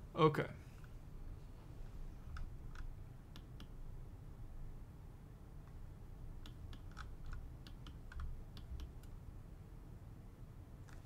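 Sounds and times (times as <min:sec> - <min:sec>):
low steady hum: 0:00.0 - 0:11.0
keyboard and mouse clicking: 0:02.3 - 0:03.8, 0:06.4 - 0:09.2.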